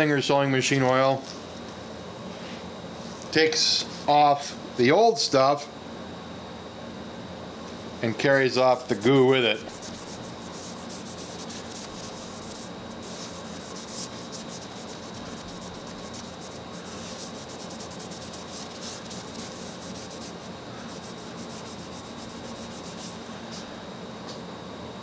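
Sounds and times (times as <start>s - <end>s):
rag scrubbing painted metal: 8.7s - 23.3s.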